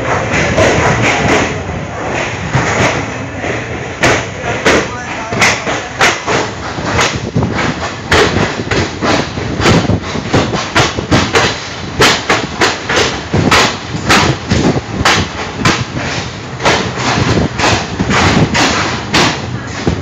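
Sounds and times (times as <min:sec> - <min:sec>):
train rumble: 0:00.0 - 0:20.0
train wheels clattering over rail joints: 0:00.0 - 0:20.0.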